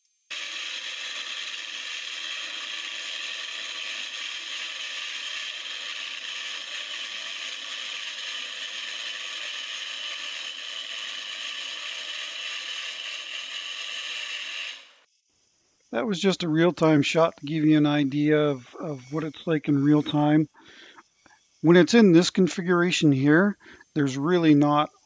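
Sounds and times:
turning tool scraping hiss: 0:00.0 - 0:25.0
lathe motor running: 0:00.3 - 0:15.0.

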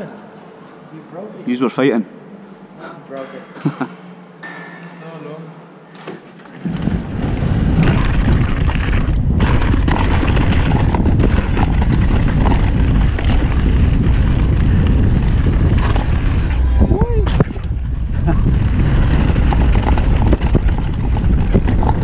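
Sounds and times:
bike clicks and rattles: 0:06.4 - 0:16.4, 0:17.4 - 0:22.0
bike tyres rumbling over gravel: 0:06.6 - 0:22.0
wind buffeting microphone: 0:06.9 - 0:22.0.

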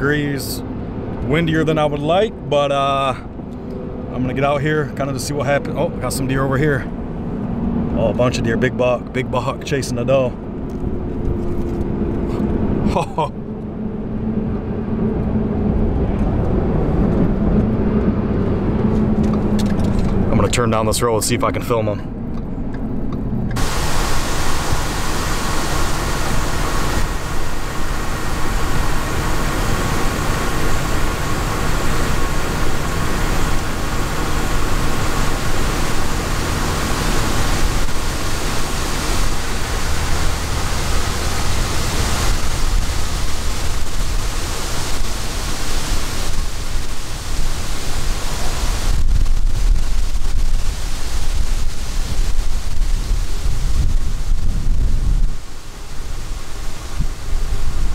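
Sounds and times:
wind buffeting microphone: 0:23.6 - 0:57.9.

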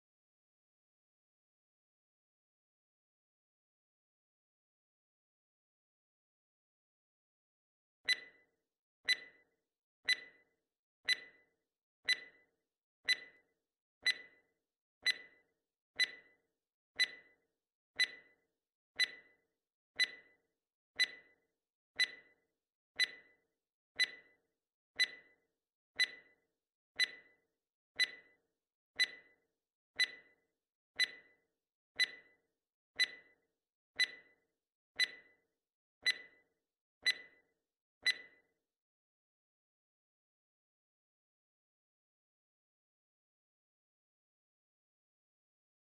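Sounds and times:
countdown timer ticking: 0:16.0 - 0:16.3, 0:17.0 - 0:17.3, 0:18.0 - 0:18.3, 0:19.0 - 0:19.3, 0:20.0 - 0:20.3, 0:21.0 - 0:21.3, 0:22.0 - 0:22.3, 0:23.0 - 0:23.3, 0:24.0 - 0:24.3, 0:26.0 - 0:26.3, 0:27.0 - 0:27.3, 0:29.0 - 0:29.3, 0:30.0 - 0:30.3, 0:31.0 - 0:31.3, 0:32.0 - 0:32.3, 0:33.0 - 0:33.3, 0:34.0 - 0:34.3, 0:35.0 - 0:35.3, 0:36.0 - 0:36.4, 0:37.0 - 0:37.4, 0:38.0 - 0:38.4.

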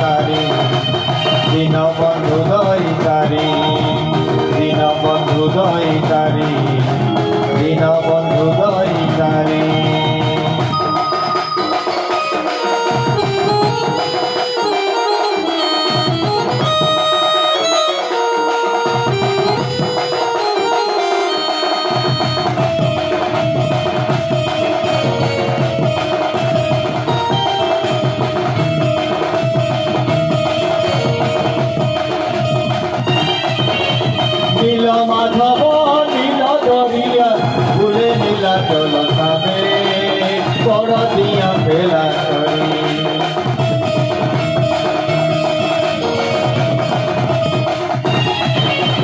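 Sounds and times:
folk drums beating: 0:00.0 - 0:49.0
folk melody line: 0:00.0 - 0:49.0.

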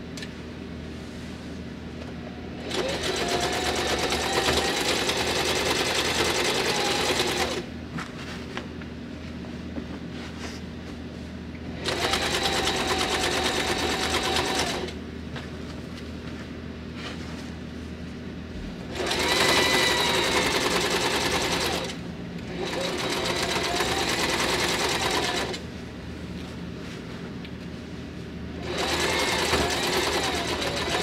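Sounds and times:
sewing machine stitching: 0:02.6 - 0:07.6, 0:11.8 - 0:15.0, 0:18.9 - 0:25.6, 0:28.6 - 0:31.0.

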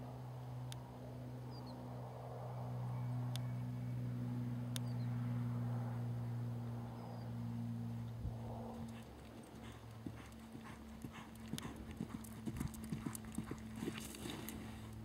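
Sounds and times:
horse hoofbeats on dirt: 0:08.8 - 0:14.8
horse sliding in dirt: 0:12.0 - 0:14.9.

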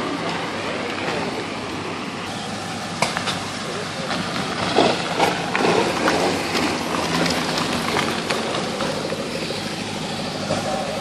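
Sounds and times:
another car engine: 0:00.0 - 0:11.0
race car engine at low revs: 0:00.0 - 0:11.0
engine popping: 0:02.3 - 0:11.0.

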